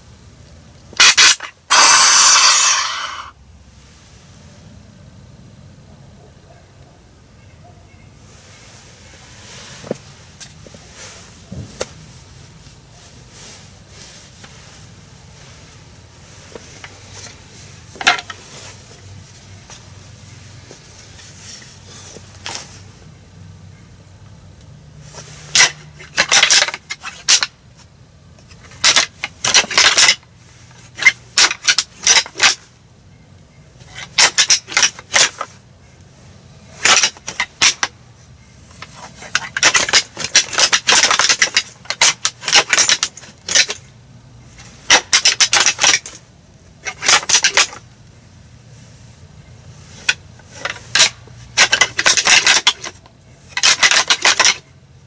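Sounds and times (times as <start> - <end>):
antlers clacking and grinding: 0.9 - 3.3, 16.4 - 19.8, 25.1 - 27.6, 28.4 - 32.7, 33.8 - 35.6, 36.6 - 38.0, 38.6 - 47.8, 49.8 - 54.7.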